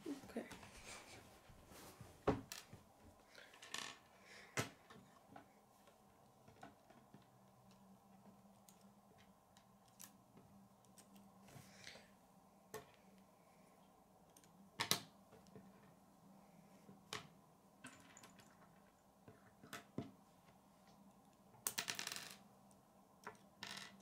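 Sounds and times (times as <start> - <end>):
plastic pieces clicking and tapping: 21.6 - 22.4.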